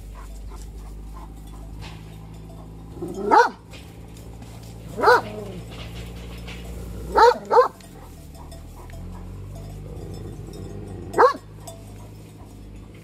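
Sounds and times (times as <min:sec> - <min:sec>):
dog yelping barks: 0:03.0 - 0:03.6, 0:04.9 - 0:05.7, 0:07.0 - 0:09.4, 0:11.1 - 0:12.5.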